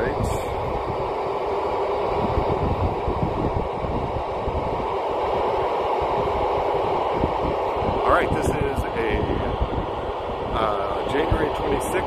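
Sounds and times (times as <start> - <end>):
wind buffeting microphone: 0.0 - 12.0
radio static hiss: 7.8 - 9.6, 10.5 - 12.0.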